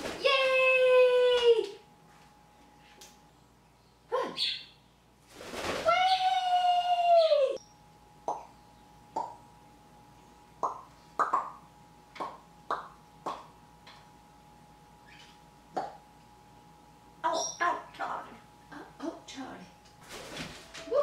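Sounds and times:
parrot wings rushing: 5.3 - 6.2.

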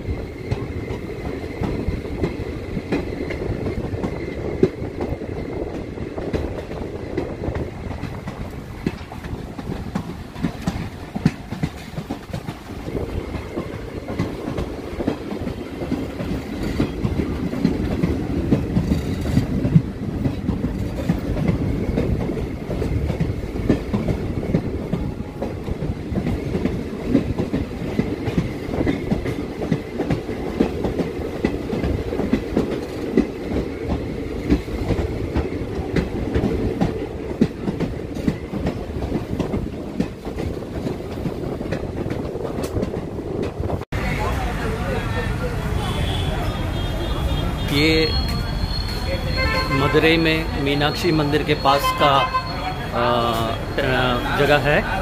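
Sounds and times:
train rumbling: 0.0 - 55.0
wheels clickety-clack over rails: 0.0 - 55.0
faint high wheel squeal: 47.2 - 54.8.

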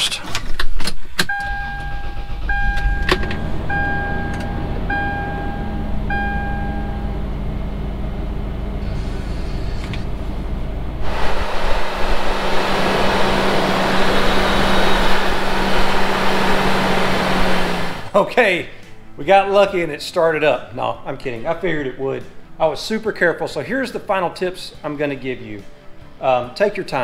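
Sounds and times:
car engine starting and idling: 0.3 - 18.2
dash chime beeping: 1.3 - 7.2
steady hum: 2.6 - 18.1.

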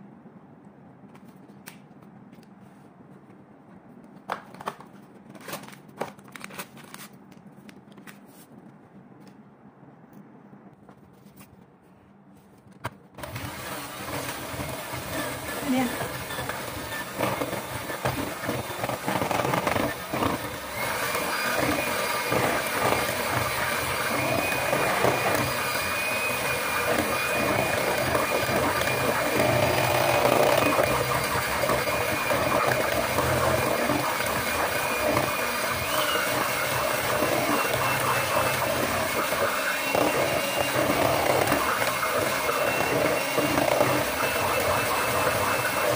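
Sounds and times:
beaters whipping cream: 13.2 - 45.9
electric hand mixer whining: 13.2 - 45.9.

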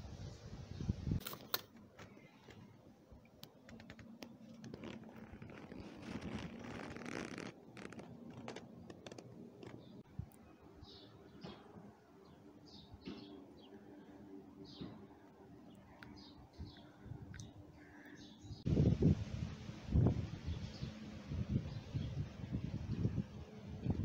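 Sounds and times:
soft scraping and rustling: 3.6 - 10.0.

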